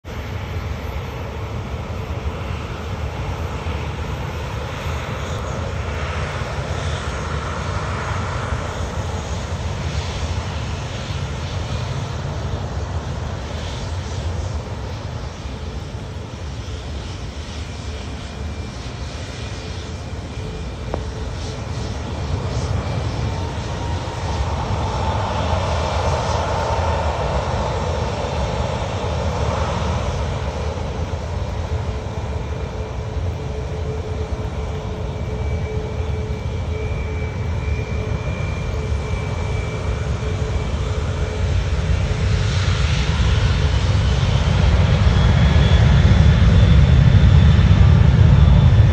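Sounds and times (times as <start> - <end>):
jet engine roar: 0.0 - 48.9
rising jet engine whine: 0.0 - 48.9.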